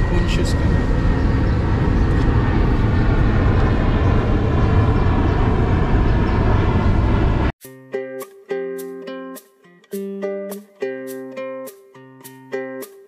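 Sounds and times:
plucked ukulele notes: 7.6 - 13.0.

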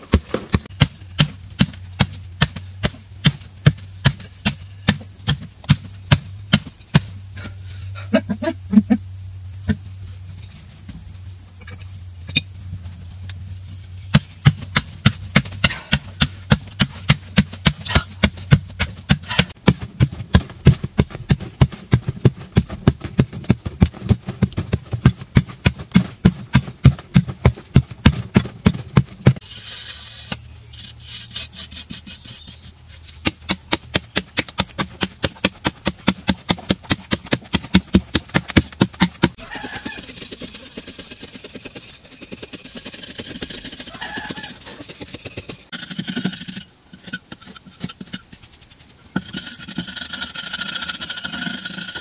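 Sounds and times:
hand tool striking earth wall: 0.0 - 7.6, 14.1 - 30.5, 31.2 - 52.0
high-pitched whine: 0.0 - 19.6, 20.3 - 52.0
scraping over earth: 12.8 - 52.0.

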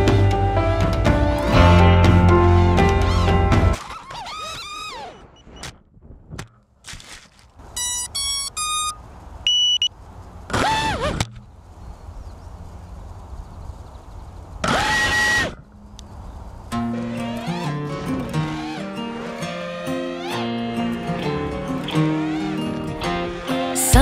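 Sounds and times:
drone motors spinning: 2.8 - 5.6, 14.6 - 15.7, 16.7 - 24.0
rising motor beeps: 7.8 - 9.9
single higher beep: 7.8 - 9.9.

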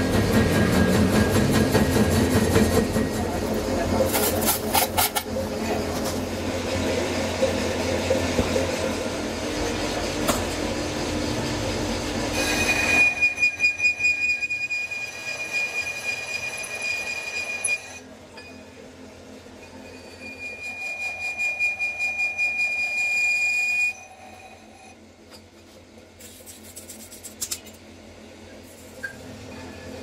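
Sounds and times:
lathe running: 0.0 - 18.0
lathe tool squealing: 12.2 - 18.0, 19.7 - 24.9.

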